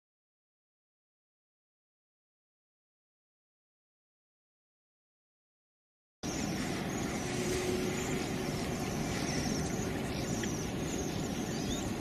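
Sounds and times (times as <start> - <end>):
faint high chirping: 6.2 - 12.0
low rumble: 6.2 - 12.0.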